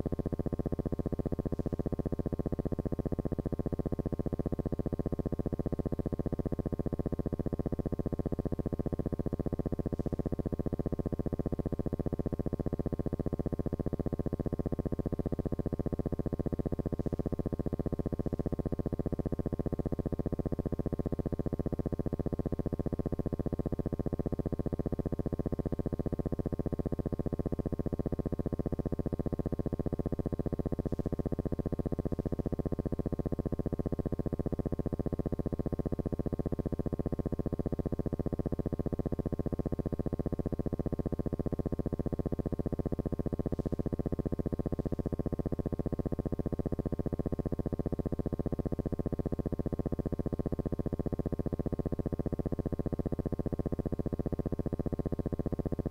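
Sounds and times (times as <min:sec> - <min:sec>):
fast buzzing pulse: 0:42.0 - 0:47.2.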